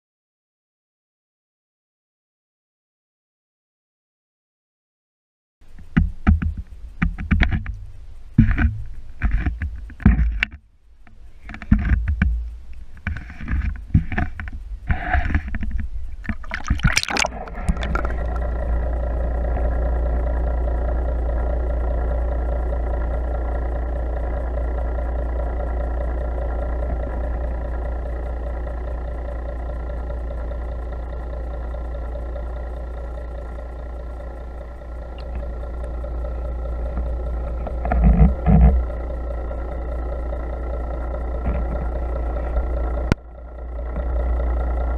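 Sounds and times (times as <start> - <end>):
underwater drone: 5.8 - 44.9
water splashing and sloshing: 16.2 - 18.5.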